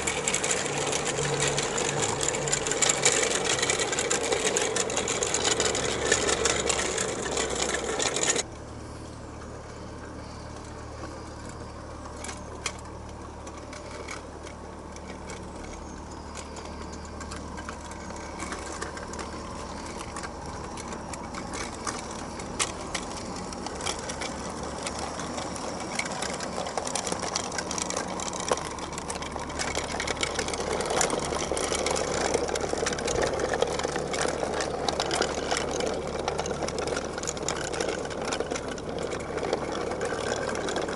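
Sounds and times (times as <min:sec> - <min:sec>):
small electric motor whirring: 0:00.0 - 0:08.5
wheels clicking on track: 0:00.0 - 0:40.9.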